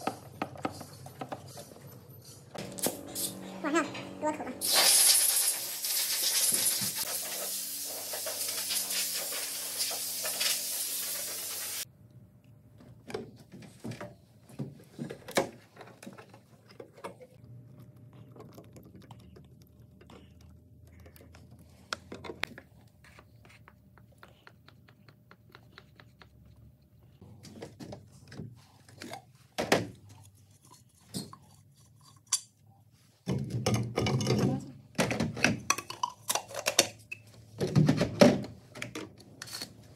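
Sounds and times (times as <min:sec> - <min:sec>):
compressed air blow gun hissing: 0:04.6 - 0:11.9
stick stirring paint in plastic cup: 0:17.8 - 0:27.0.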